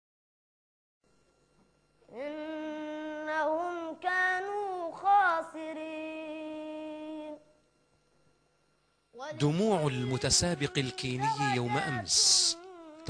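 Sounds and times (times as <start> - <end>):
boy chanting recitation: 2.1 - 7.4, 9.2 - 13.0.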